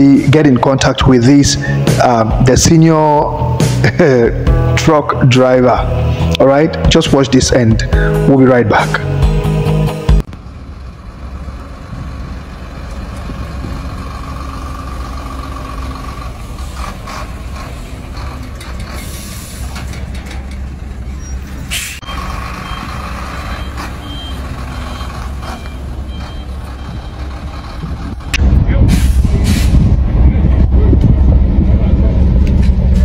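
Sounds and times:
truck diesel engine running: 0:00.0 - 0:33.0
air brake hiss: 0:19.0 - 0:19.7, 0:21.7 - 0:22.0, 0:28.9 - 0:29.8
reversing alarm beeping: 0:22.0 - 0:27.9.

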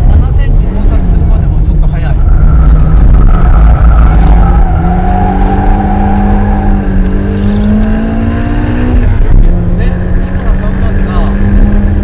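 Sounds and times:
car engine accelerating hard: 0:00.0 - 0:12.0.

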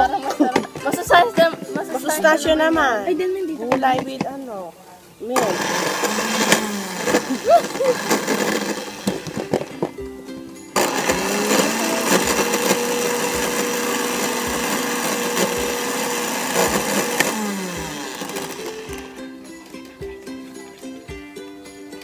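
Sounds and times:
blender motor whine: 0:05.4 - 0:09.5, 0:10.8 - 0:19.2.

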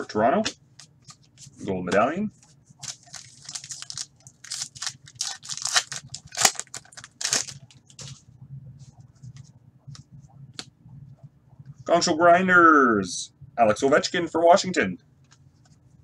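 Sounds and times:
foil wrapper tearing and crinkling: 0:02.8 - 0:07.7.

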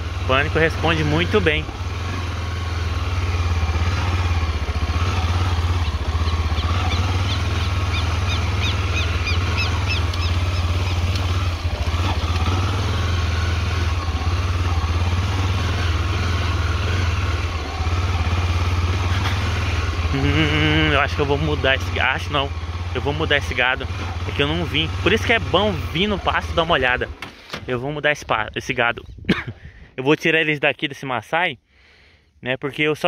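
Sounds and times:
small motorcycle engine running: 0:00.0 - 0:27.5
high repeated chirps: 0:05.8 - 0:11.1.

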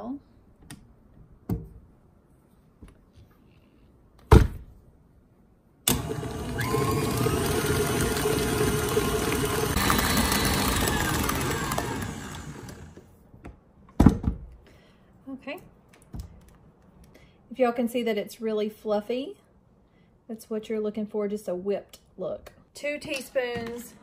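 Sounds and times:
stand mixer motor whine: 0:05.9 - 0:13.0.

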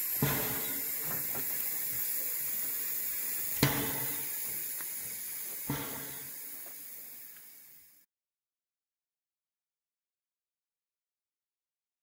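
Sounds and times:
steam locomotive hissing: 0:00.0 - 0:08.1
sharp knocks: 0:03.6 - 0:04.2, 0:05.7 - 0:06.3.

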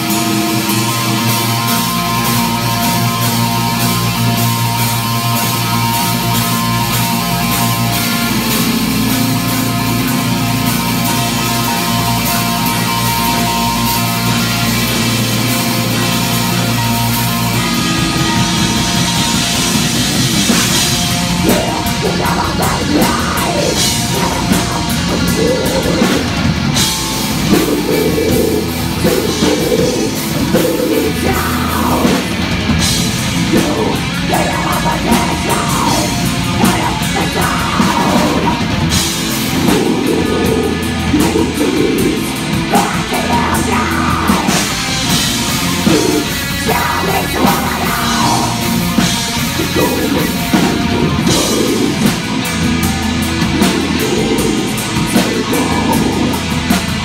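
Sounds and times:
distorted electric guitar chord: 0:00.0 - 0:57.0
heavy metal band playing: 0:00.0 - 0:57.0
person singing: 0:21.4 - 0:32.3, 0:33.4 - 0:44.9, 0:45.7 - 0:52.5, 0:53.6 - 0:56.8.

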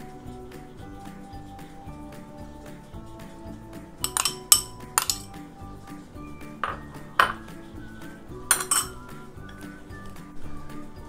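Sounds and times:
background music: 0:00.0 - 0:11.0
spoon clinking on metal cookware: 0:04.0 - 0:05.3, 0:08.5 - 0:09.1.

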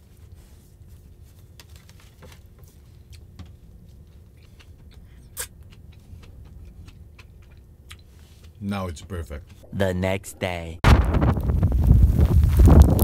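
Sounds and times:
clicks and crackles of eating: 0:01.3 - 0:09.6
steady low rumble: 0:03.7 - 0:13.0.

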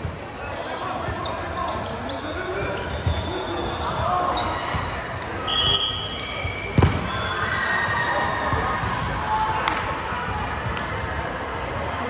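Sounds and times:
murmur of voices: 0:00.0 - 0:12.0
sneakers squeaking on floor: 0:00.0 - 0:12.0.

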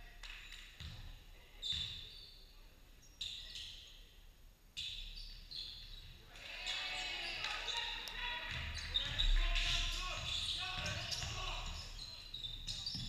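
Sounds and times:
shoes squeaking on wooden court: 0:01.6 - 0:02.4, 0:03.0 - 0:04.0, 0:07.2 - 0:13.0.

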